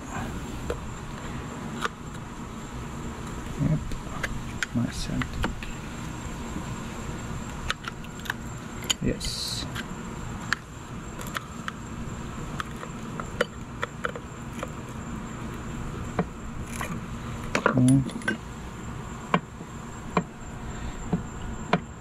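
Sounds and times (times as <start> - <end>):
high insect trill: 0.0 - 22.0
metal tools clicking and tapping: 17.5 - 18.4.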